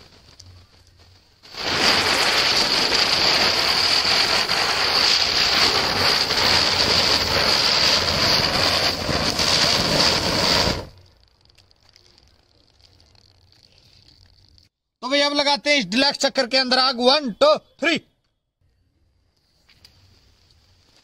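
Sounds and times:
spinning firework hissing and whistling: 0:00.0 - 0:14.7, 0:19.3 - 0:21.0
fuse fizzing: 0:10.3 - 0:14.7.

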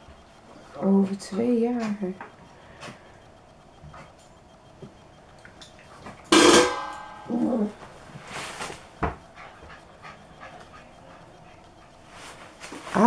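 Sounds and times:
rustling: 0:07.7 - 0:09.0.

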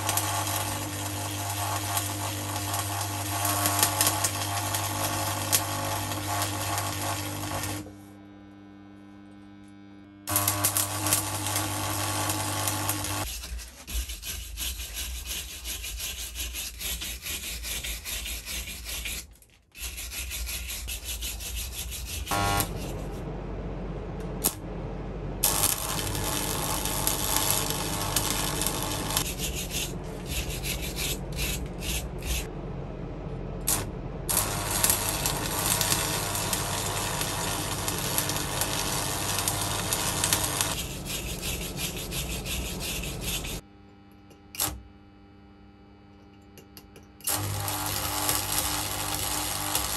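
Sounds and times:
welding arc crackling and hissing: 0:00.0 - 0:07.9, 0:09.4 - 0:13.3, 0:20.3 - 0:23.2, 0:25.4 - 0:32.5, 0:33.7 - 0:43.6, 0:47.3 - 0:49.9
low steady hum: 0:20.2 - 0:49.9.

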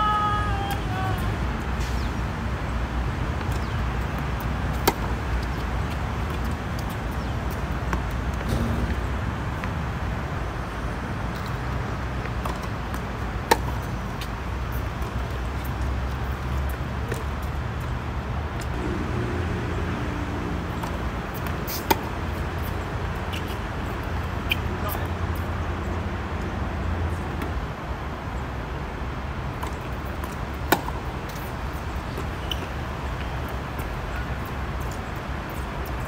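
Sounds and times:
low outdoor rumble: 0:18.4 - 0:34.2.

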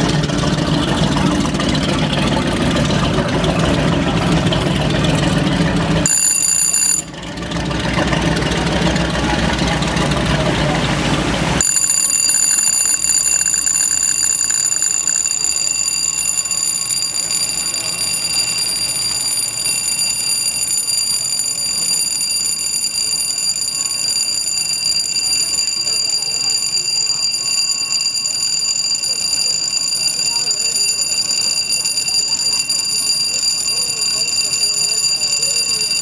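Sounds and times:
electric alarm ringing: 0:06.0 - 0:07.2, 0:11.6 - 0:36.0.

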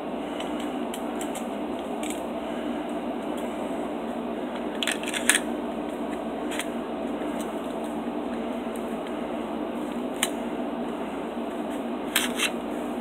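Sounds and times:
steady background hum: 0:00.0 - 0:13.0
pistol parts clicking: 0:04.8 - 0:05.4.

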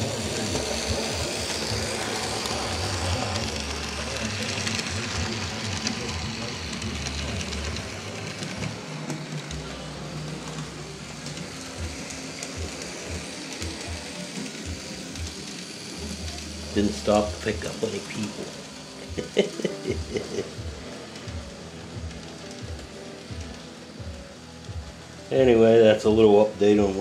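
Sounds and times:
electric motor whirr: 0:00.0 - 0:25.0.

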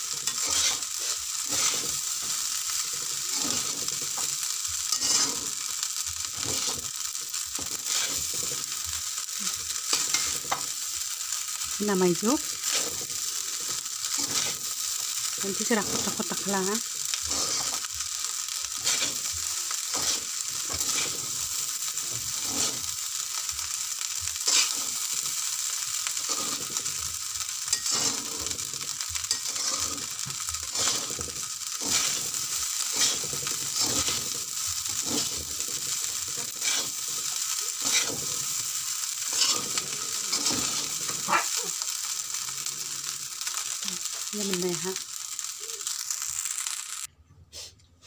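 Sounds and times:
rice sizzling in a wok: 0:00.0 - 0:47.7
metal spatula scraping a pan: 0:00.1 - 0:06.9, 0:07.6 - 0:08.9, 0:09.7 - 0:10.7, 0:12.5 - 0:14.8, 0:17.2 - 0:17.9, 0:18.8 - 0:21.4, 0:24.4 - 0:25.2, 0:27.7 - 0:41.3.

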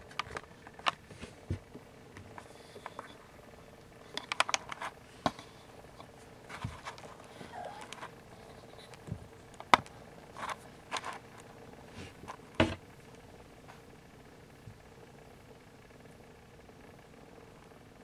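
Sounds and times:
kittens scuffing and rustling: 0:00.0 - 0:02.9, 0:04.7 - 0:12.8.

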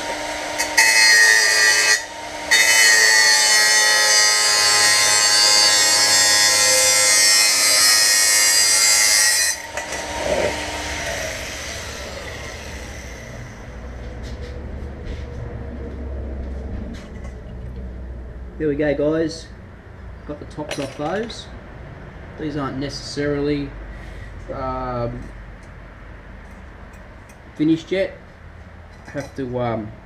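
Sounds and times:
angle grinder cutting metal: 0:00.0 - 0:13.9.

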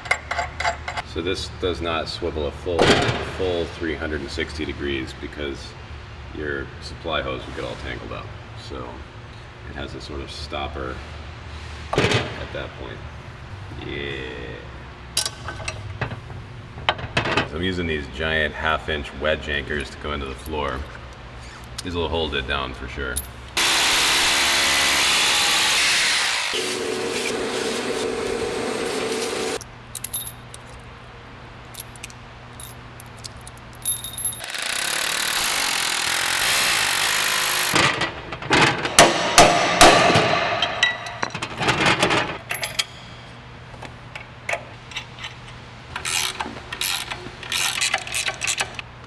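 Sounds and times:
metal nuts and washers clinking: 0:00.0 - 0:01.0, 0:23.1 - 0:23.6, 0:29.6 - 0:31.0, 0:31.6 - 0:36.0, 0:40.6 - 0:43.2, 0:44.1 - 0:48.8
hammer drill boring into concrete: 0:34.4 - 0:37.8.

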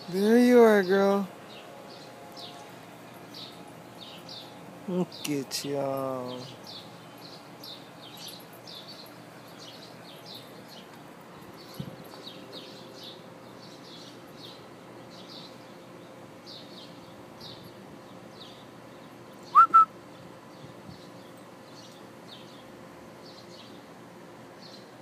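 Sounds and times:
small high chirps: 0:19.5 - 0:19.9
short loud whistled notes: 0:19.6 - 0:19.9.

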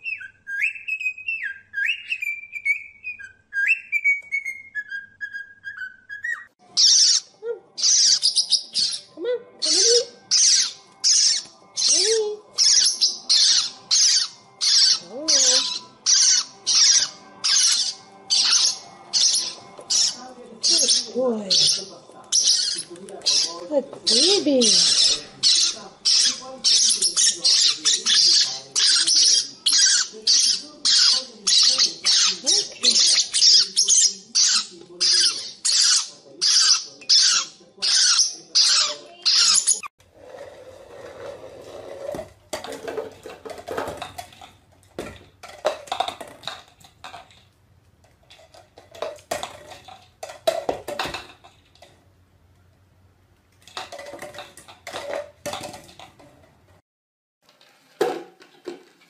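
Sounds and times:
parrotlets squawking: 0:00.0 - 0:39.9.

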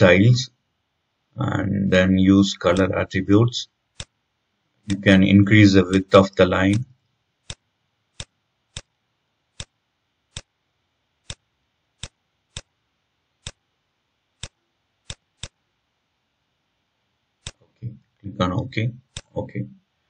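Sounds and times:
computer mouse clicking: 0:04.0 - 0:04.2, 0:07.4 - 0:07.6, 0:08.2 - 0:08.9, 0:09.6 - 0:10.5, 0:11.2 - 0:12.7, 0:13.4 - 0:13.6, 0:14.4 - 0:15.6, 0:17.4 - 0:17.6, 0:19.1 - 0:19.4.

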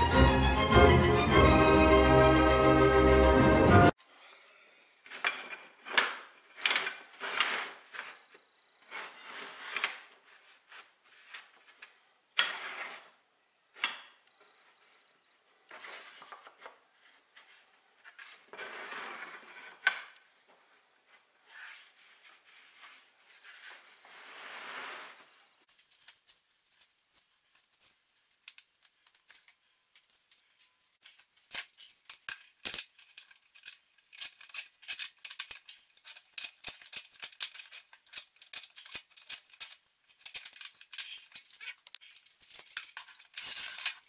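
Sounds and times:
wooden strips scraping on wood: 0:05.1 - 0:08.2, 0:08.8 - 0:11.8, 0:12.4 - 0:13.2, 0:15.7 - 0:20.2, 0:21.1 - 0:25.4.

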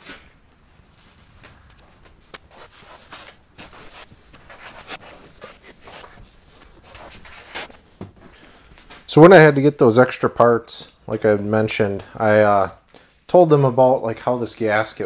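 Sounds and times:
cloth rag rubbing on door frame: 0:00.0 - 0:08.3.

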